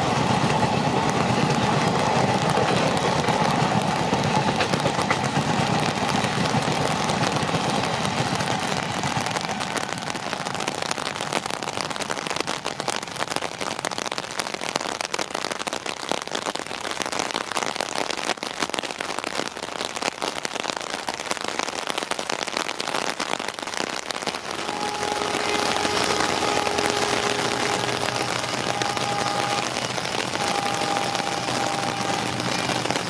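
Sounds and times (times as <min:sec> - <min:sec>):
heavy rain falling: 0:00.0 - 0:33.0
distant two-note train horn: 0:24.4 - 0:33.0.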